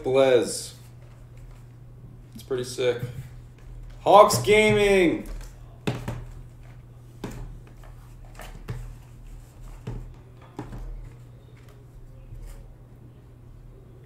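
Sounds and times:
low steady hum: 0.0s - 14.0s
boxes knocking on table: 4.1s - 6.4s, 9.8s - 11.2s.

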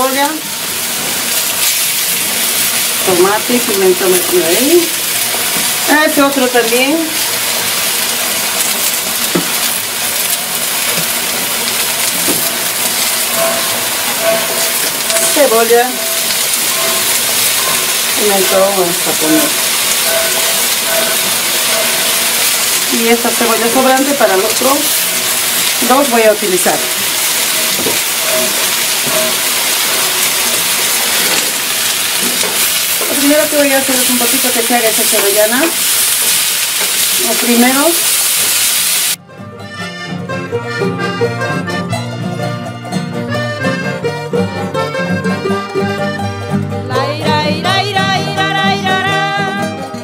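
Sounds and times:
vegetables sizzling in oil: 0.0s - 39.2s.

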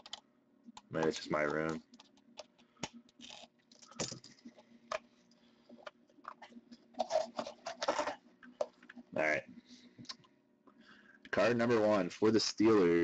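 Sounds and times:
faint steady hum: 0.0s - 13.0s
cardboard and packaging rustling: 6.2s - 8.9s.

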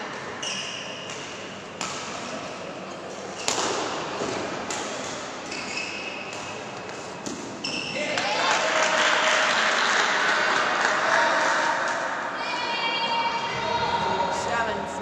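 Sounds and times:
shoes squeaking on court: 0.3s - 2.0s, 2.9s - 8.1s
racket striking shuttlecock: 3.4s - 5.3s.

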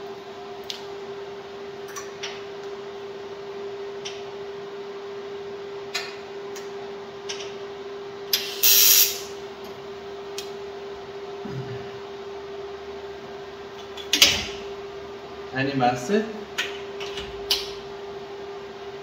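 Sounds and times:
welding machine humming: 8.3s - 9.4s.

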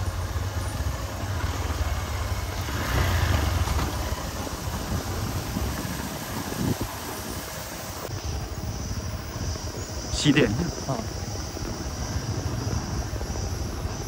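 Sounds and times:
motorcycle engine rumble: 0.0s - 14.0s.

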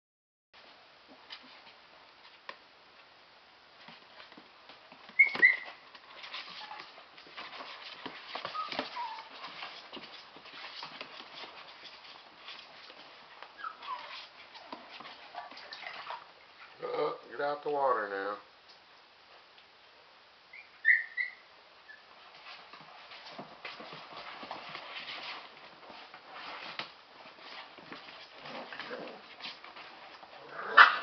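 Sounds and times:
puppies scuffling on sheet: 0.6s - 3.1s, 3.7s - 16.8s, 21.8s - 31.0s
puppies yipping: 5.1s - 5.8s, 8.3s - 9.8s, 13.5s - 16.2s, 20.5s - 22.1s
puppies whining: 5.1s - 7.0s, 8.3s - 9.8s, 13.5s - 16.2s, 20.5s - 22.1s.

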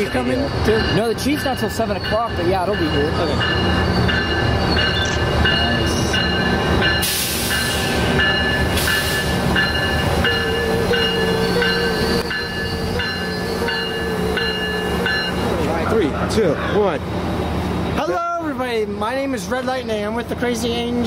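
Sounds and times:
locomotive bell ringing: 0.0s - 16.8s
diesel locomotive rumble: 0.0s - 21.0s.

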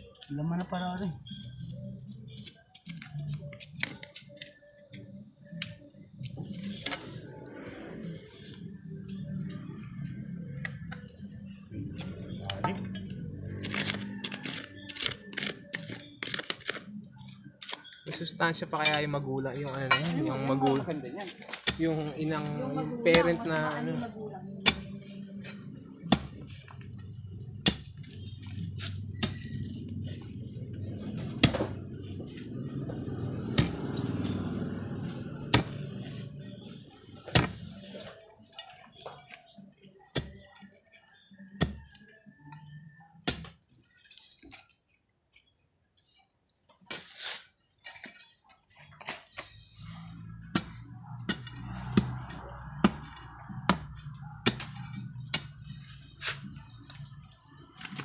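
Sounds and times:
scraping of earth: 20.2s - 39.3s, 46.8s - 57.1s.

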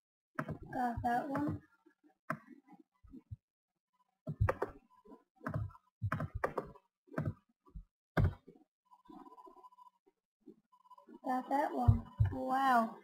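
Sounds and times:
keyboard and mouse clicking: 0.4s - 1.6s, 5.4s - 7.4s.

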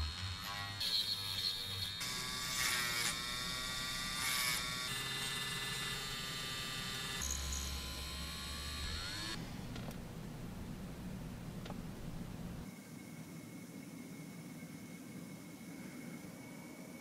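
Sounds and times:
rotary tool motor whining: 0.0s - 10.1s.

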